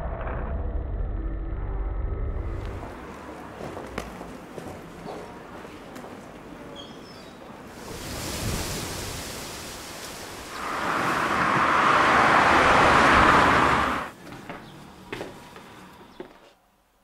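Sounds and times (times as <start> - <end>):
outdoor rushing noise: 7.8 - 14.2.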